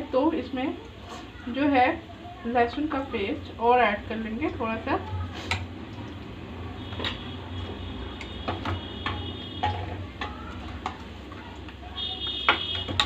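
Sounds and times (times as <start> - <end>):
spoon knocking on metal pots: 6.8 - 13.0.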